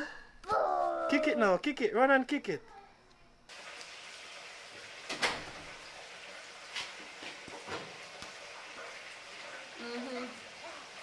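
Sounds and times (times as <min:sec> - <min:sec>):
outdoor hiss: 0:03.5 - 0:11.0.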